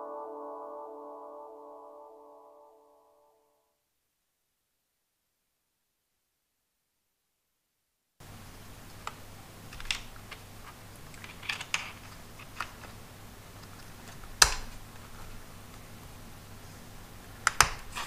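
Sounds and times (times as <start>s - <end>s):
plastic clicks and scrapes: 9.1s - 13.0s, 17.4s - 18.0s.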